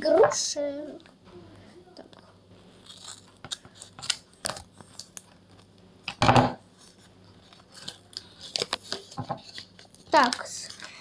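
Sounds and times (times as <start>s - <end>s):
paper handling: 2.7s - 5.7s, 6.8s - 11.0s
scissors cutting paper: 2.8s - 5.2s.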